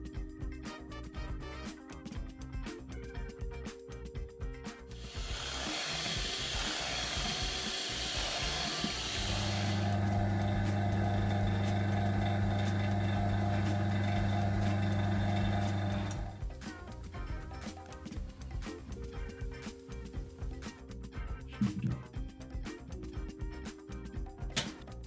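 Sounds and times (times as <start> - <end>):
steady hiss: 5.0 - 9.8
vacuum pump humming: 5.0 - 16.4.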